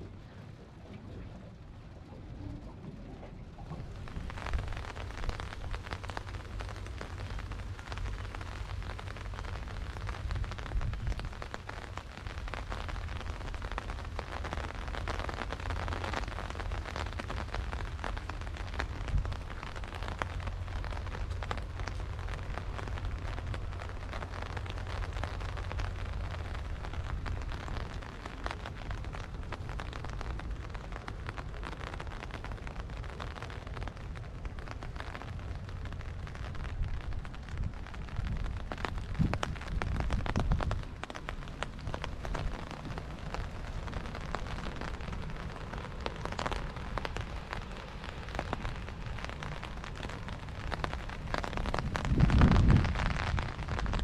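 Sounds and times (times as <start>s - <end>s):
low rumble: 0.0s - 54.0s
steady rain falling: 0.0s - 54.0s.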